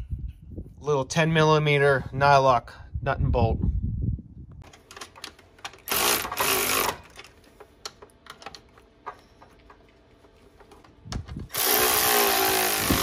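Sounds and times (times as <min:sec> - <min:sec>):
electric ratchet running: 0:05.7 - 0:07.2, 0:11.5 - 0:13.0.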